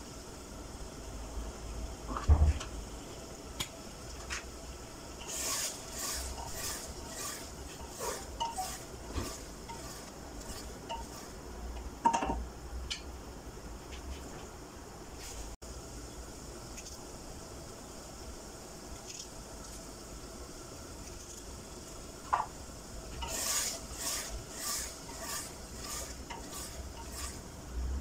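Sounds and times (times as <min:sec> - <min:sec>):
wooden spoon scraping a pot: 0:05.2 - 0:11.4, 0:23.2 - 0:27.5.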